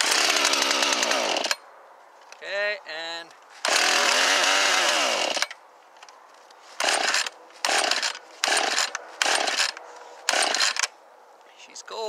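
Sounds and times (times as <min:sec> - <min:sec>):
chainsaw recoil starter pulls: 0:00.0 - 0:01.6, 0:03.6 - 0:05.6, 0:06.8 - 0:10.9.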